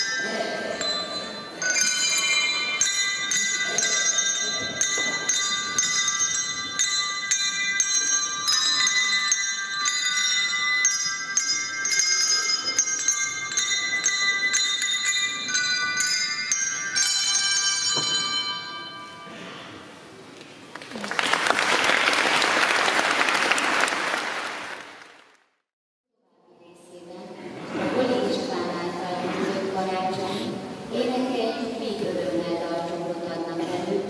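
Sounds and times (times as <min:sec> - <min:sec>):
handbell ensemble playing: 0:00.0 - 0:19.3.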